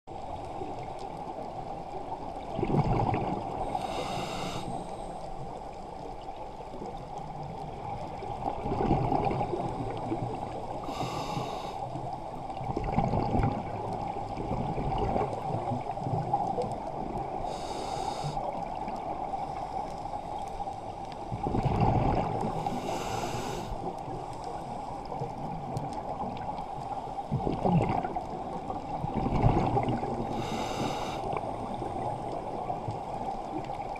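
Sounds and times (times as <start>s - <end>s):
exhaled bubbles rushing: 2.5s - 3.6s, 12.7s - 15.4s, 27.4s - 28.3s, 29.1s - 30.3s
regulator inhalation hiss: 3.7s - 5.0s, 10.8s - 11.9s, 17.5s - 18.4s, 22.6s - 23.8s, 30.3s - 31.3s.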